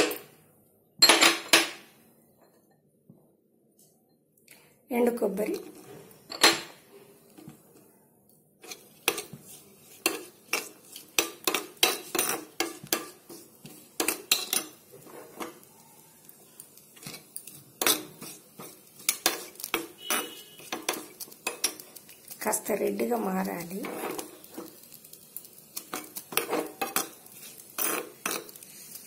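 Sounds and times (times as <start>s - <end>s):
spoon clinking and scraping pan: 8.6s - 15.7s, 16.9s - 22.4s, 23.6s - 24.8s, 25.7s - 28.6s.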